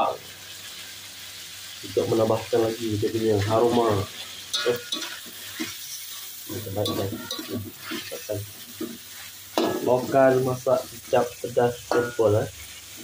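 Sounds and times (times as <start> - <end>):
food sizzling in wok: 0.0 - 13.0
metal spatula scraping wok: 3.3 - 13.0.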